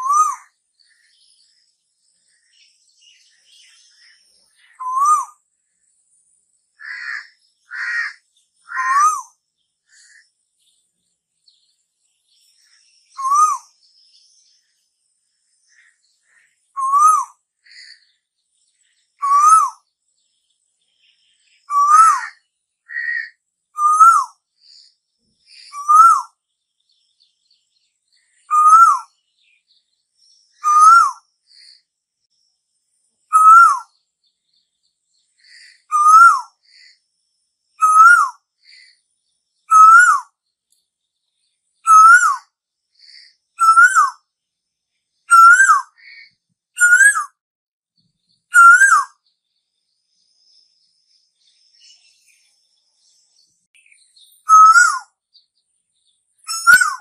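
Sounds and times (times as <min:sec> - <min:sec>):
bird whistled calls: 0:00.0 - 0:00.6, 0:04.7 - 0:05.4, 0:06.8 - 0:10.2, 0:13.1 - 0:13.8, 0:16.7 - 0:18.0, 0:19.2 - 0:19.8, 0:21.6 - 0:24.8, 0:25.6 - 0:26.4, 0:28.4 - 0:29.2, 0:30.5 - 0:31.7, 0:33.3 - 0:34.0, 0:35.5 - 0:36.9, 0:37.8 - 0:38.9, 0:39.6 - 0:40.4, 0:41.8 - 0:42.5, 0:43.1 - 0:44.2, 0:45.3 - 0:47.4, 0:48.5 - 0:49.2, 0:53.8 - 0:55.2, 0:56.4 - 0:57.0
harsh bird notes: 0:56.5 - 0:57.0.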